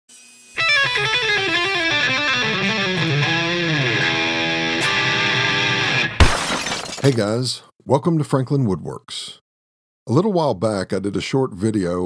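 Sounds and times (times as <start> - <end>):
electric guitar music: 0.6 - 6.2.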